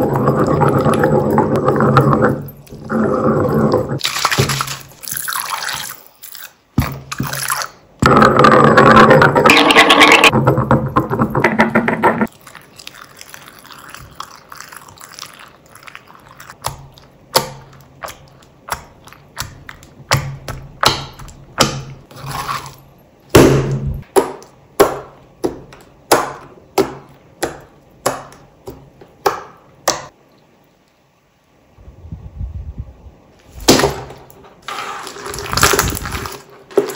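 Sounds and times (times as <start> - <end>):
slime squelching in mortar: 12.3 - 22.8, 34.9 - 36.9.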